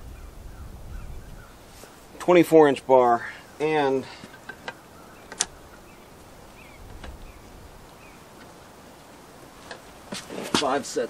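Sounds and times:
distant bird chirps: 0:00.0 - 0:10.1
sharp light clicks: 0:04.4 - 0:05.8.

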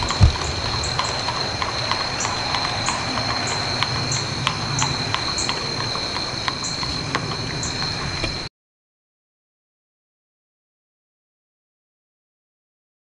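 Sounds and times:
horse hooves clip-clopping: 0:00.0 - 0:08.4
low rumble: 0:00.0 - 0:08.5.

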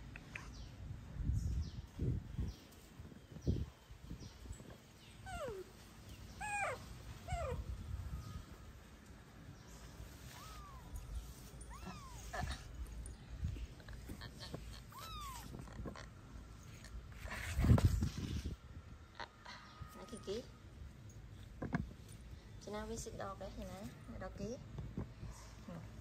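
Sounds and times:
kittens mewing: 0:10.2 - 0:13.0, 0:13.7 - 0:16.2.

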